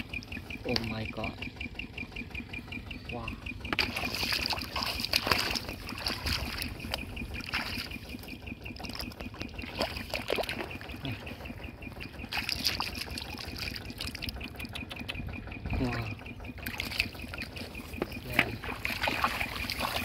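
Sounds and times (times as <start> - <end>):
small splashes and clicks: 3.7 - 11.0, 12.2 - 15.2, 16.6 - 20.0
hands splashing in muddy water: 3.8 - 8.2, 8.8 - 11.0, 12.2 - 14.3, 18.4 - 20.0
water trickling: 3.8 - 11.2, 12.0 - 14.5, 16.6 - 20.0.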